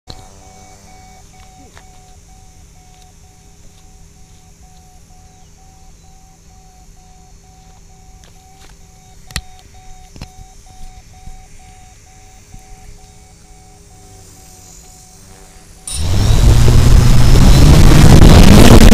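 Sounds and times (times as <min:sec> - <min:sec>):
low electronic hum: 0:00.1 - 0:18.9
pulsing electronic tone: 0:00.1 - 0:18.9
low rumble: 0:15.8 - 0:18.9.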